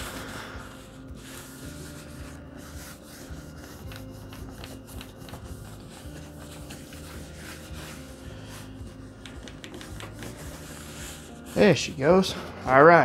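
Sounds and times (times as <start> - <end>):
paper towel rubbing a screen: 0.0 - 12.9.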